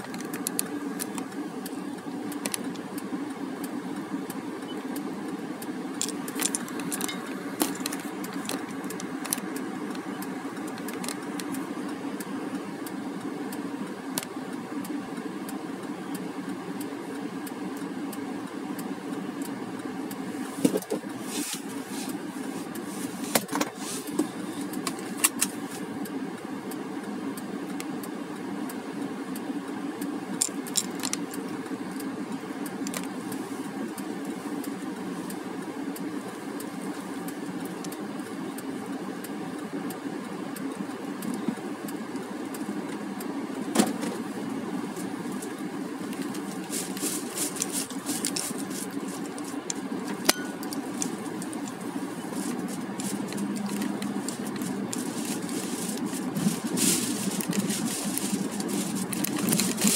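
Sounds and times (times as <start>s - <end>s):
car engine and road hum: 0.0s - 59.9s
loose items rattling in car: 43.7s - 59.9s.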